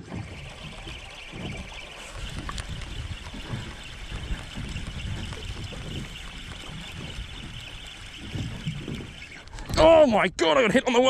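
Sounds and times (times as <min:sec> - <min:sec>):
wind buffeting microphone: 0:00.0 - 0:10.4.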